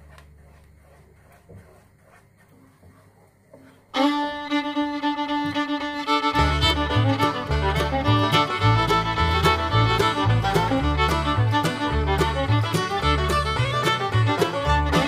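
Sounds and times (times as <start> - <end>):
wooden spoon stirring in pot: 0.0 - 3.9
fiddle melody: 3.9 - 15.0
bass line: 5.6 - 15.0.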